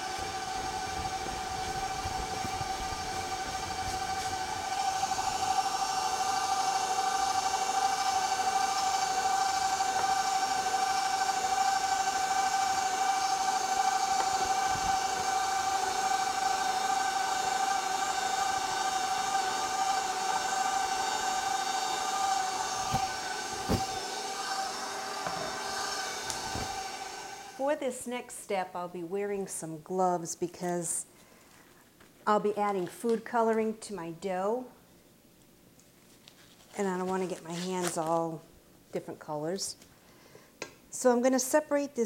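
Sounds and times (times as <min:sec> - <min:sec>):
stand mixer motor whining: 0:00.0 - 0:27.6.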